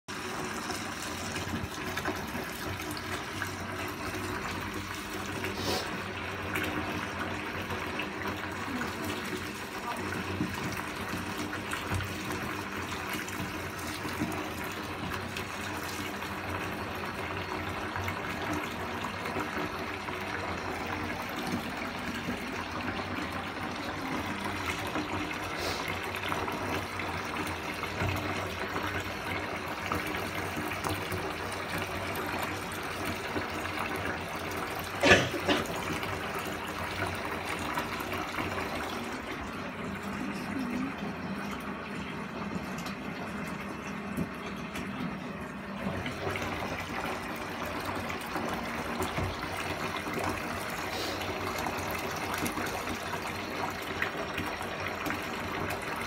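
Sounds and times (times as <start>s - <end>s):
water running into bathtub: 0.1s - 56.0s.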